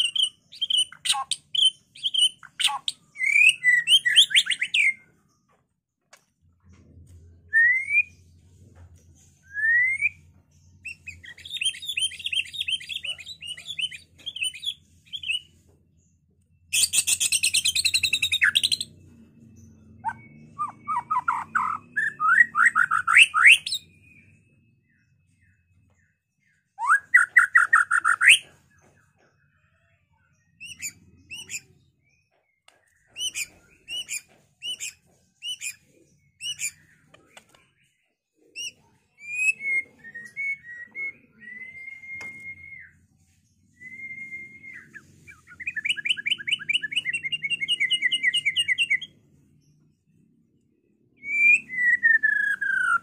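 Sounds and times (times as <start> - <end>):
bird singing whistles and trills: 0.0 - 5.1, 7.3 - 8.3, 9.3 - 15.6, 16.6 - 49.4, 51.1 - 53.0.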